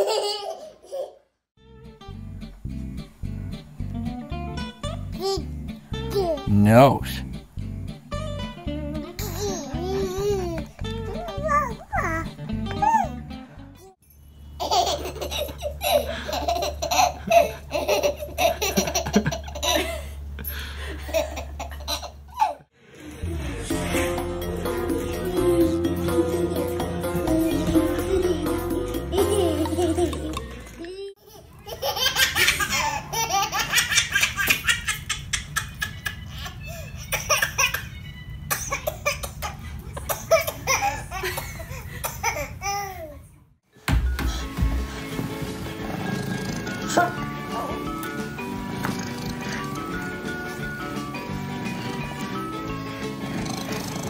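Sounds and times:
baby laughing: 0:00.0 - 0:01.3, 0:04.8 - 0:06.5, 0:09.1 - 0:13.2, 0:14.6 - 0:20.0, 0:21.0 - 0:22.7, 0:27.3 - 0:38.0, 0:38.6 - 0:43.2.

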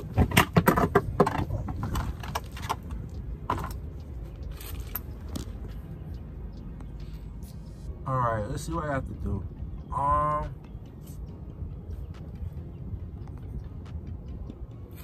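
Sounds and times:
phone handling clicks and knocks: 0:00.0 - 0:03.8
steady low rumble: 0:00.0 - 0:15.0.

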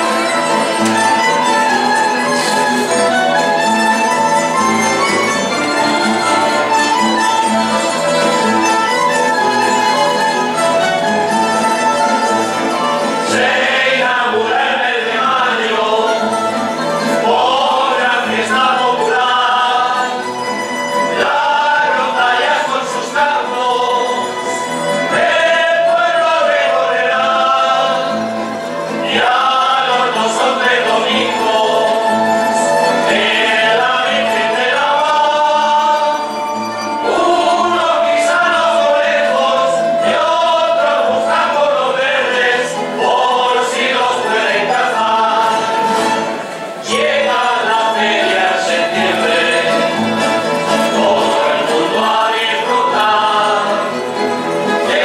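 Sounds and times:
strummed and plucked guitars: 0:00.0 - 0:55.0
men singing together: 0:13.1 - 0:20.4, 0:21.0 - 0:55.0.

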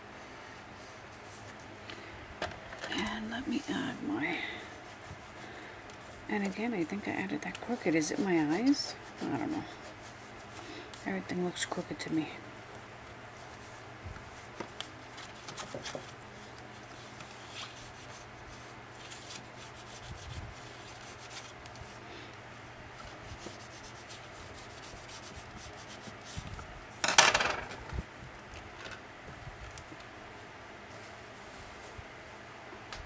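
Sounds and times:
bone folder rubbing paper: 0:03.5 - 0:11.8, 0:16.8 - 0:21.9, 0:23.0 - 0:26.5
paper and card rustling: 0:14.4 - 0:18.3, 0:19.0 - 0:21.9.

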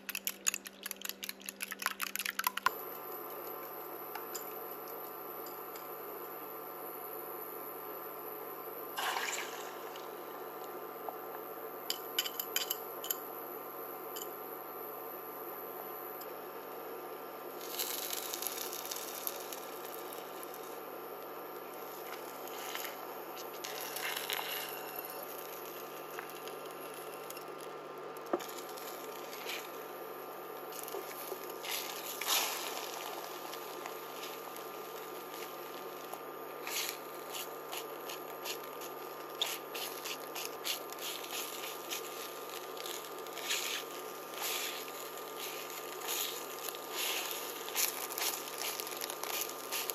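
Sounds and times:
steady hum: 0:00.0 - 0:49.9
scraping sizzling rushes: 0:36.6 - 0:49.9.

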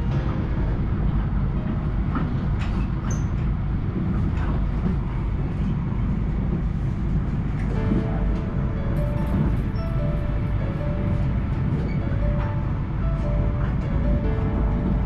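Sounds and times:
train rumbling from inside: 0:00.0 - 0:15.0.

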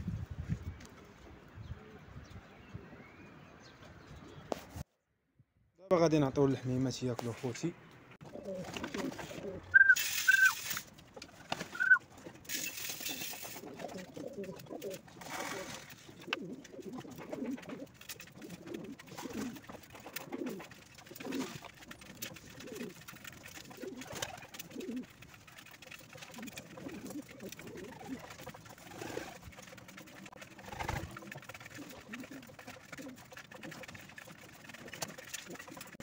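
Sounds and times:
pigeons cooing: 0:08.2 - 0:10.7, 0:11.3 - 0:12.0, 0:12.7 - 0:36.0
short high squeaks: 0:09.7 - 0:10.8, 0:11.7 - 0:12.0.

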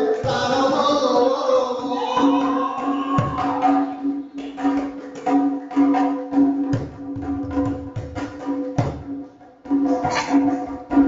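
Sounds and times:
held melody instrument tone: 0:00.0 - 0:07.5
hand drum beating: 0:00.0 - 0:11.0.

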